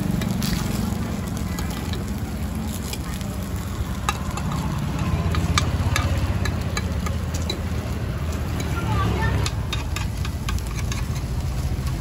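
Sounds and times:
light sizzling: 0.0s - 12.0s
utensils scraping metal frying pan: 8.3s - 12.0s.

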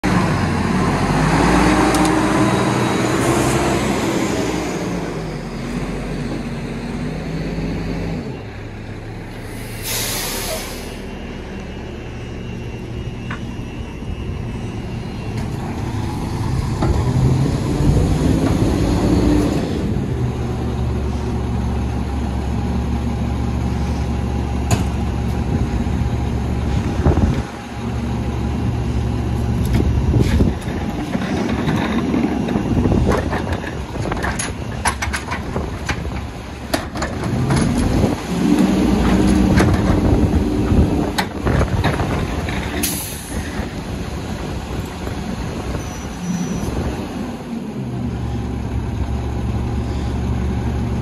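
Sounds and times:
garbage truck diesel engine: 0.0s - 51.0s
air brakes hissing: 9.3s - 11.2s, 42.8s - 43.6s.

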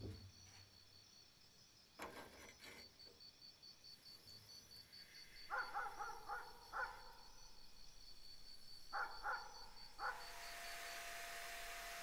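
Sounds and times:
sandblaster air hiss and whistle: 9.8s - 12.0s.

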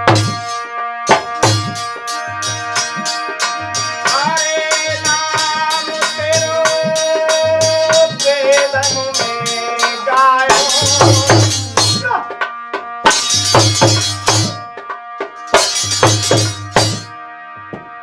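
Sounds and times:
shaken percussion: 0.0s - 17.1s
harmonium: 0.0s - 18.0s
hand drum beating: 1.1s - 17.1s
man singing: 3.8s - 12.4s.

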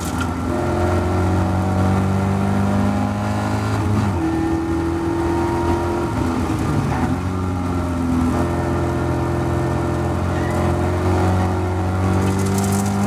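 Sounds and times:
race car engine at high revs: 0.0s - 13.0s.

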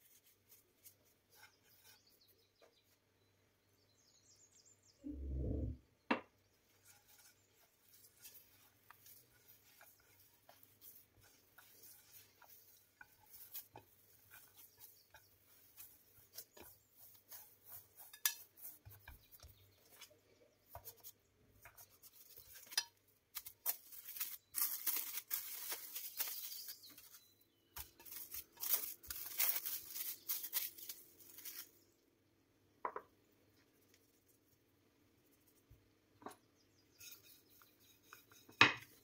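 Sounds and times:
dough taps and scrapes on plate: 6.1s - 24.2s, 32.8s - 33.2s, 36.1s - 39.0s
cling film crinkling: 22.0s - 27.2s, 27.8s - 31.8s.

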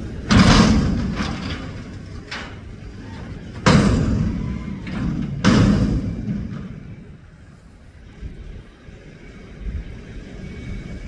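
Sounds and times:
dumpster slamming against lift arms: 0.0s - 7.2s
dumpster knocking: 0.2s - 2.6s, 3.4s - 7.1s.

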